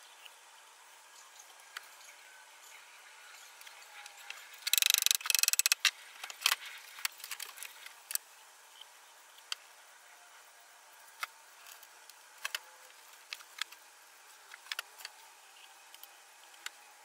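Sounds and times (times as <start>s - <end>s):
rapid rattling clicks: 4.6s - 8.2s.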